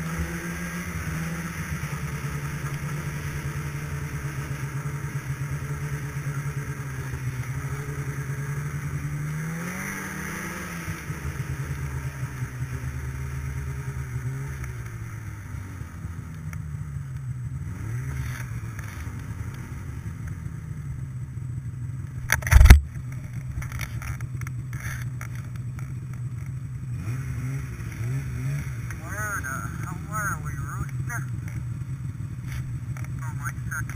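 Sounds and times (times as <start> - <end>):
snowmobile engine running: 0.0 - 33.9
loud thump: 22.4 - 22.9.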